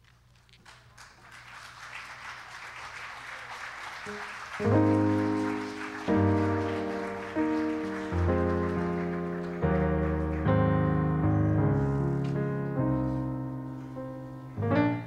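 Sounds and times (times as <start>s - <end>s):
congregation applause: 0.5s - 11.6s
keyboard sustained chords: 4.6s - 15.0s.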